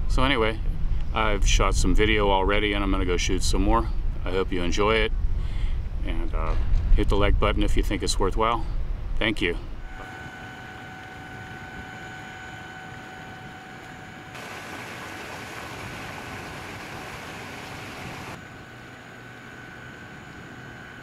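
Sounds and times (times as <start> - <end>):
outdoor background noise: 0.0 - 21.0
faint two-note hum: 9.8 - 15.0.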